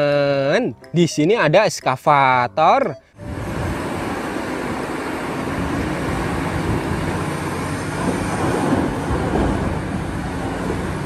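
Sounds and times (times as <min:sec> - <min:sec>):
excavator engine rumble: 0:03.2 - 0:11.0.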